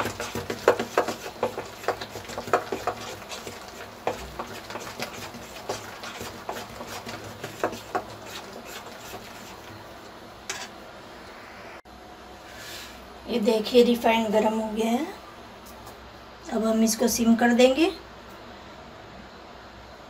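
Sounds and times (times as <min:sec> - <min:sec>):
hand slapping batter in bowl: 0:00.0 - 0:09.7.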